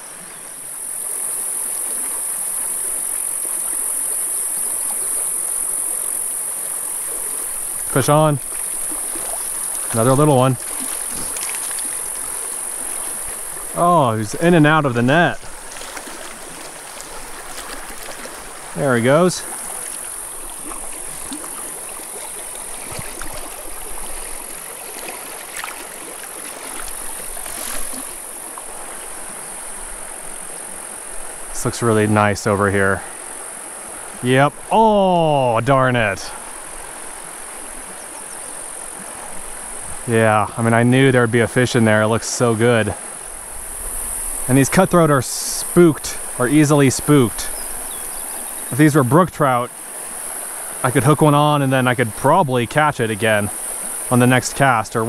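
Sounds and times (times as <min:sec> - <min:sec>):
creek rushing over rocks: 0:00.6 - 0:55.0
insects shrilling: 0:00.8 - 0:24.8.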